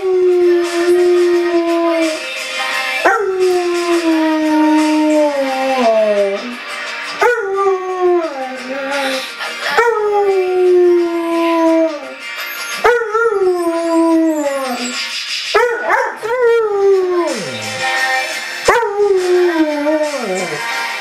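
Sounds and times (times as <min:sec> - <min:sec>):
background music: 0:00.0 - 0:21.0
dog howling: 0:03.0 - 0:06.6, 0:07.2 - 0:15.0, 0:15.6 - 0:17.8, 0:18.7 - 0:20.6.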